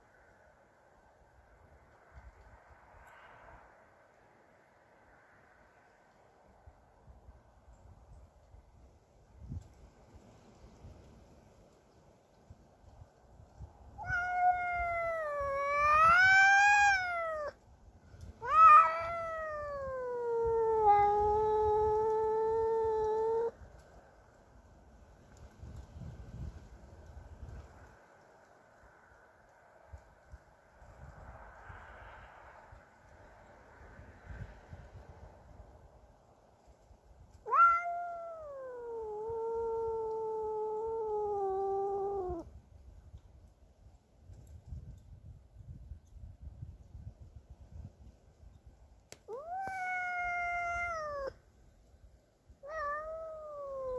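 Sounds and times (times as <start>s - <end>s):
cat yowling: 14.0s - 17.6s, 18.4s - 23.5s, 37.4s - 42.5s, 49.3s - 51.4s, 52.6s - 53.9s.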